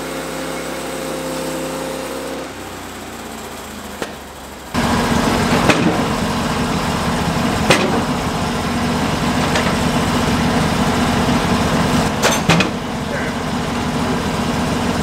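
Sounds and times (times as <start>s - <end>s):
sawmill engine idling: 0.0s - 15.0s
timber knocking on metal bed: 7.6s - 8.2s.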